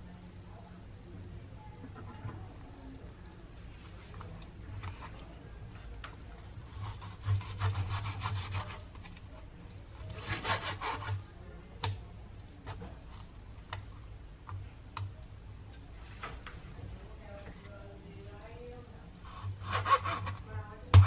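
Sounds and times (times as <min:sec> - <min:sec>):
knife sawing meat: 0:06.7 - 0:08.8, 0:10.0 - 0:11.2.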